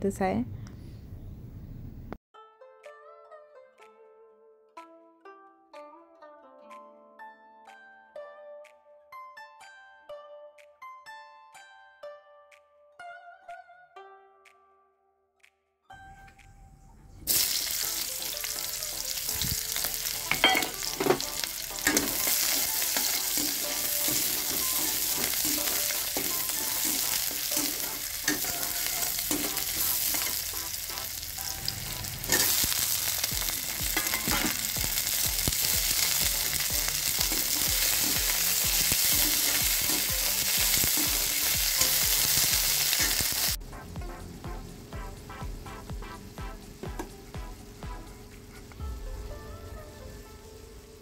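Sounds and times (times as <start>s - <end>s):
oil sizzling in a wok: 17.3s - 43.6s
metal spatula knocking and scraping: 20.3s - 23.4s, 34.0s - 34.6s.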